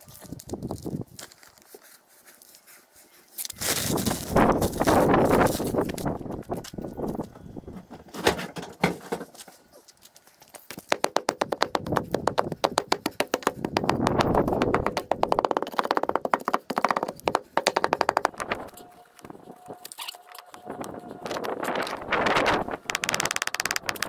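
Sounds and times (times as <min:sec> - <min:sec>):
rapid even knocking: 0:10.9 - 0:18.4
rough scraping noise: 0:17.9 - 0:24.0.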